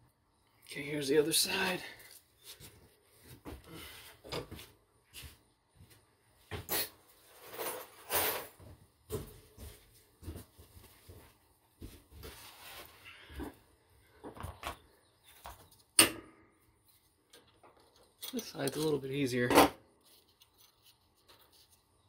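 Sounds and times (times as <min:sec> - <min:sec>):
light clicks and knocks of parts: 0:16.8 - 0:21.8.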